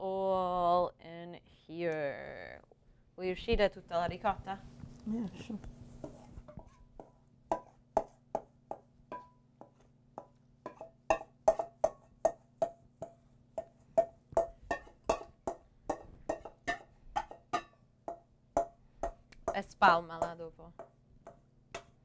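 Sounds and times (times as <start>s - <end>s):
wooden spoon knocking metal bowl: 6.0s - 22.0s.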